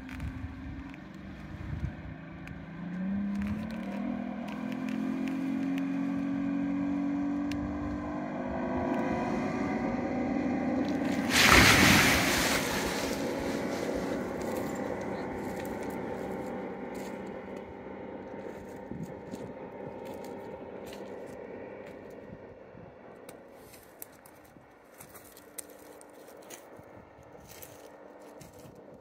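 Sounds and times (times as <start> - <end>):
motorboat engine running: 0.0 - 29.0
loud rush of noise: 11.1 - 14.5.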